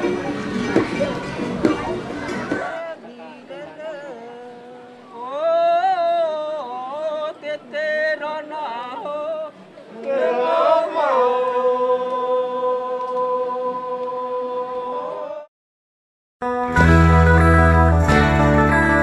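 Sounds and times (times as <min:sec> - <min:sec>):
person singing: 0:02.7 - 0:15.5.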